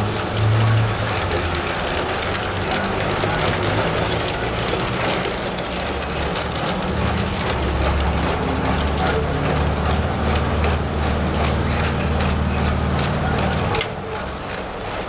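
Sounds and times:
toy train wheels clicking: 0:00.0 - 0:15.0.

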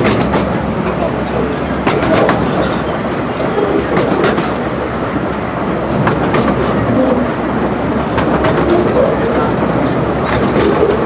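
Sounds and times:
clicks over rail joints: 0:00.0 - 0:01.1, 0:01.8 - 0:02.8, 0:03.4 - 0:04.7, 0:06.0 - 0:07.2, 0:08.0 - 0:11.0
train wheels rumbling on track: 0:00.0 - 0:11.0.

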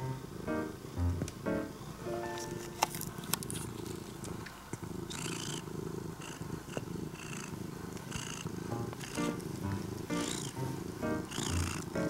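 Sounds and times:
cat purring: 0:00.0 - 0:12.0
soft rustles: 0:02.2 - 0:04.8.

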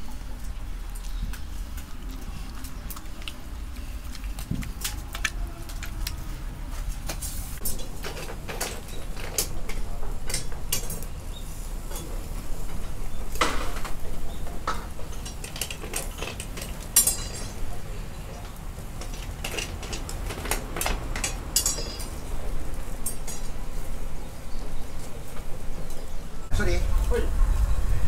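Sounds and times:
utensils and dishes clinking: 0:07.6 - 0:11.2, 0:11.8 - 0:23.6.

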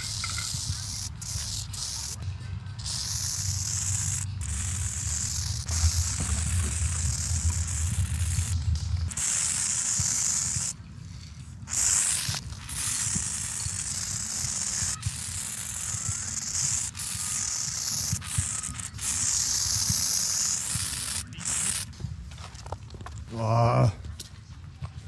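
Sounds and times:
spray paint can hissing: 0:00.0 - 0:10.8, 0:11.4 - 0:22.0.

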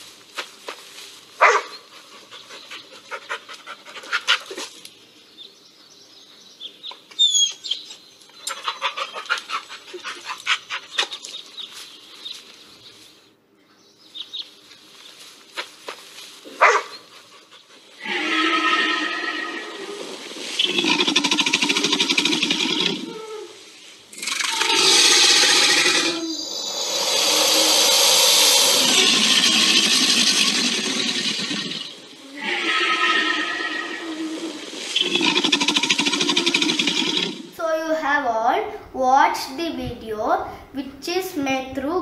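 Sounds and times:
dog barks from phone speaker: 0:01.4 - 0:01.7, 0:16.6 - 0:16.9.

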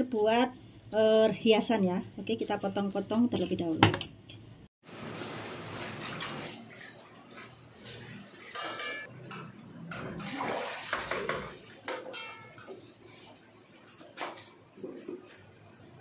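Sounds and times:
water splashing: 0:04.8 - 0:09.1, 0:09.8 - 0:15.4
dishes clattering in metal sink: 0:05.7 - 0:15.5.

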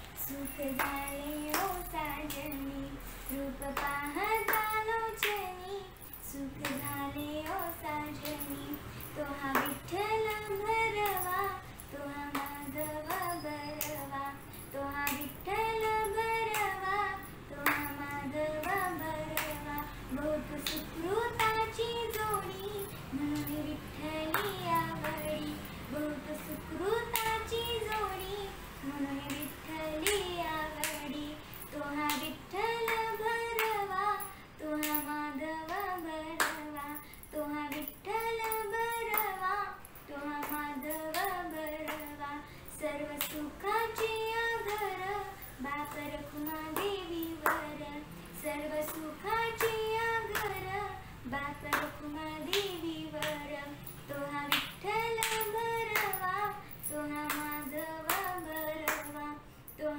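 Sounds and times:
girl singing: 0:00.0 - 0:59.9
sharp claps: 0:00.7 - 0:02.6, 0:17.6 - 0:19.9, 0:29.2 - 0:31.2, 0:35.7 - 0:36.8, 0:40.4 - 0:42.2, 0:43.1 - 0:47.8, 0:48.8 - 0:50.8, 0:51.6 - 0:56.5, 0:57.3 - 0:59.2.

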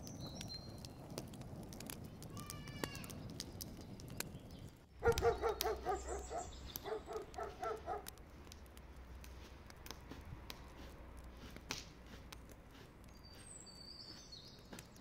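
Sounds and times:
wood fire crackling: 0:00.0 - 0:15.0
dog barking: 0:05.0 - 0:08.1.

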